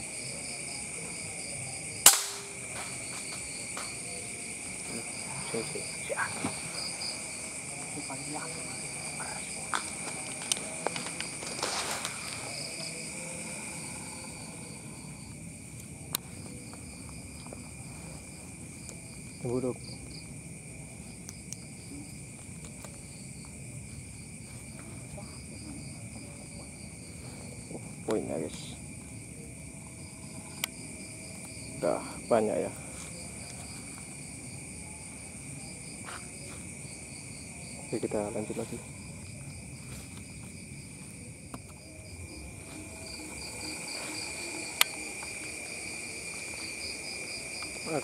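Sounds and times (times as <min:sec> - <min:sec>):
crickets chirring: 0:00.0 - 0:48.0
insects trilling: 0:00.0 - 0:48.0
sharp click: 0:02.1 - 0:02.5.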